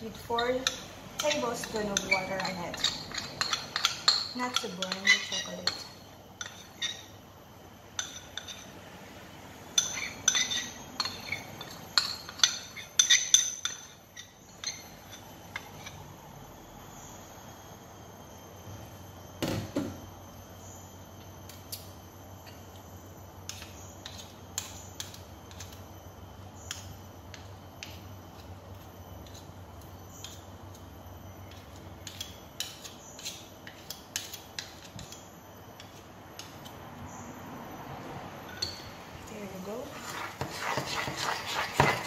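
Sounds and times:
spoon scraping ceramic bowl: 0:00.1 - 0:07.2, 0:09.8 - 0:16.0, 0:39.6 - 0:42.0.

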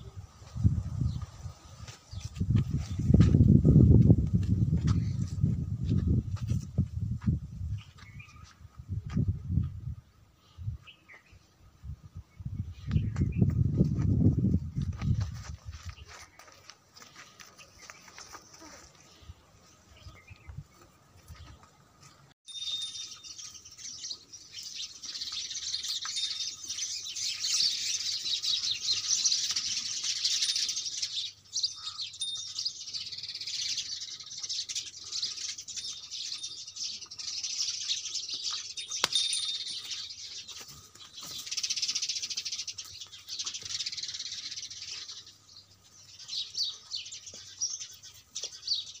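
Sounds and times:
small birds chirping: 0:07.2 - 0:09.3, 0:12.3 - 0:13.9, 0:14.7 - 0:49.0.

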